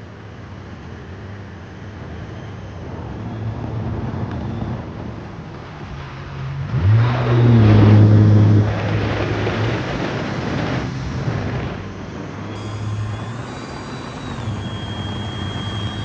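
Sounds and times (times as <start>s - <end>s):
jet ski engine revving: 6.4s - 10.7s, 12.6s - 16.0s.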